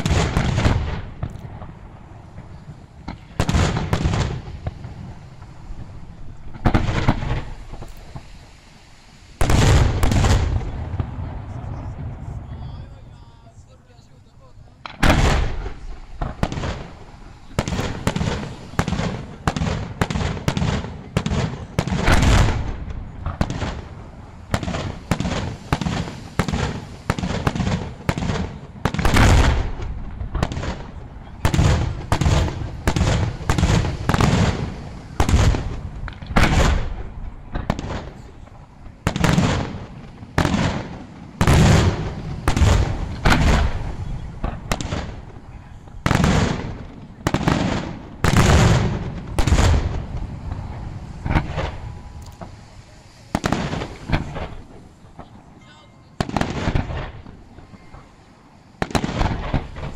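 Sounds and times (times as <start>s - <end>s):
firework shells booming: 0.0s - 13.0s, 14.7s - 55.6s, 56.2s - 59.9s
firework crackle: 0.0s - 59.9s.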